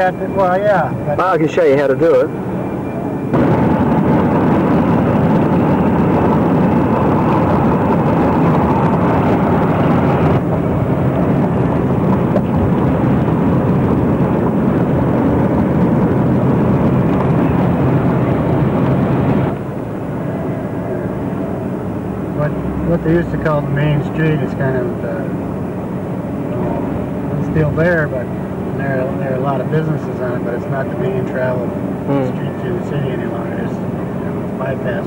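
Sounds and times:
road and wind noise inside vehicle: 0.0 - 35.0.

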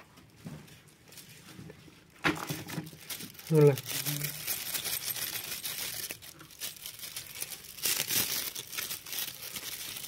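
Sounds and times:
packing paper crinkling: 2.1 - 10.0.

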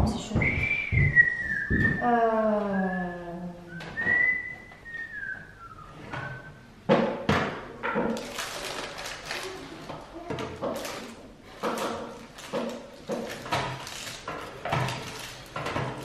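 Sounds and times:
high whistle-like tone: 0.4 - 2.0, 3.7 - 6.6.

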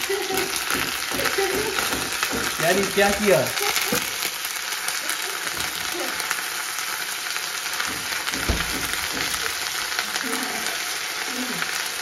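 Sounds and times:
paste sizzling in hot oil: 0.0 - 12.0
dull knock: 0.7 - 2.6, 7.9 - 9.5.

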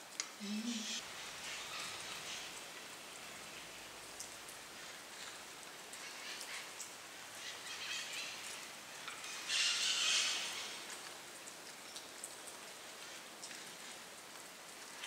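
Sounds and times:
faint patter with clicks: 10.8 - 15.0.

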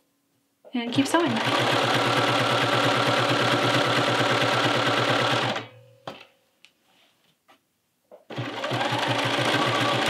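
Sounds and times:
sewing machine stitching: 0.9 - 5.7, 8.3 - 10.0.

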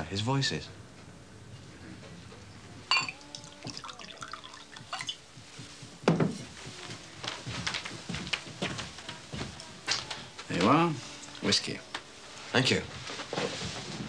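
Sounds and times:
glass clinking: 2.9 - 5.2
whisky pouring into a glass: 3.1 - 5.2.

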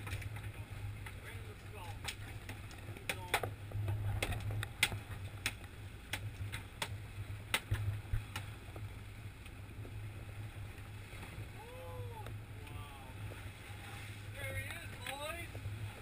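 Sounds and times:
boat engine humming: 0.0 - 16.0
light sharp clicks: 14.6 - 15.2.

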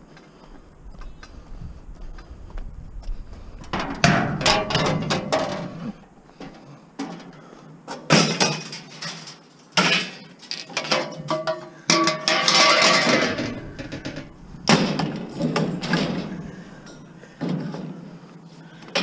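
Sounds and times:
scrap metal clattering into bin: 8.1 - 17.1.

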